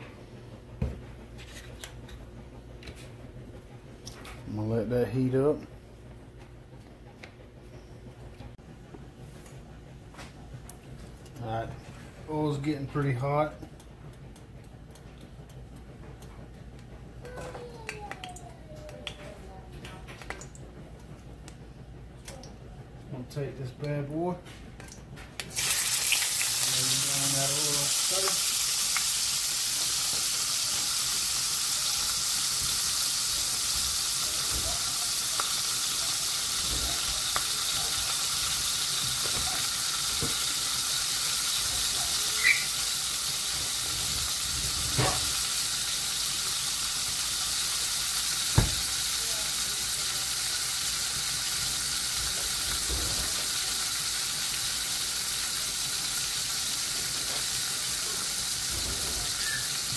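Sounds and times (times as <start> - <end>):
meat sizzling in oil: 25.5 - 59.9.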